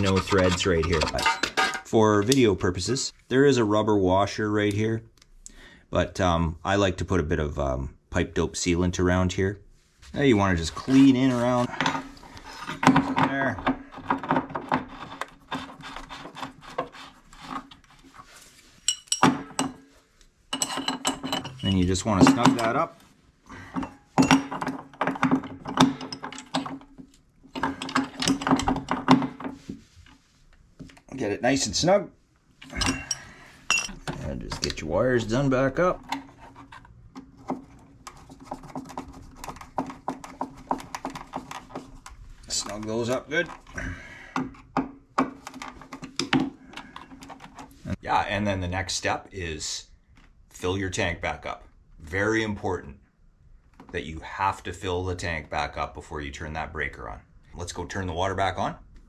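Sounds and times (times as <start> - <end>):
hands rubbing and scraping metal: 0.0 - 2.5, 9.8 - 12.8, 13.8 - 19.2, 20.1 - 23.2.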